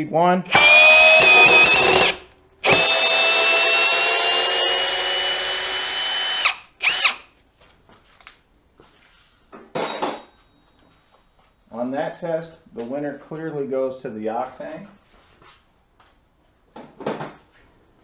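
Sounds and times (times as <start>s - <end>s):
cordless drill motor whine: 0.5s - 7.2s.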